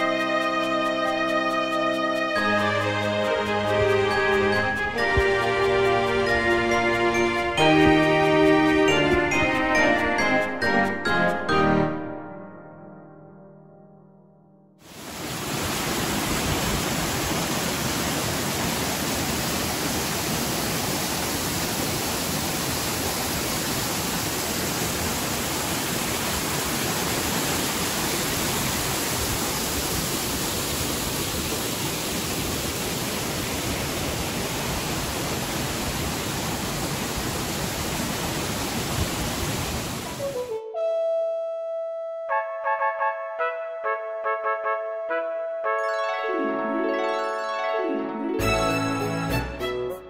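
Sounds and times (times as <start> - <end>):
waterfall rushing: 14.8 - 40.5.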